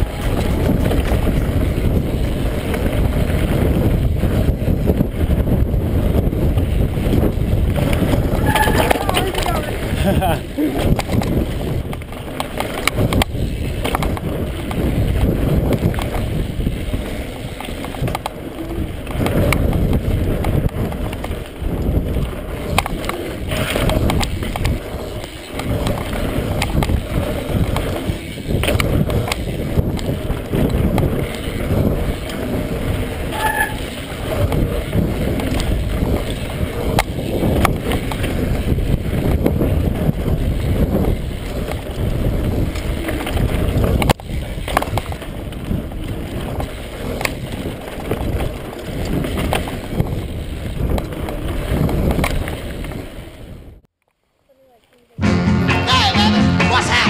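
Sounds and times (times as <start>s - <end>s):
tyres rumbling on dirt: 0.0s - 53.8s
bike rattling over bumps: 0.0s - 53.9s.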